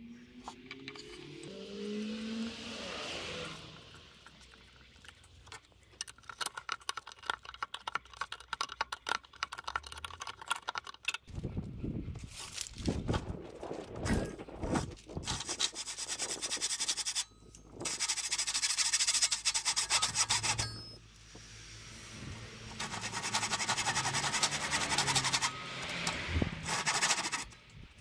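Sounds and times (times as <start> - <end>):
tool rasping against wood: 15.3 - 20.9, 22.7 - 27.5.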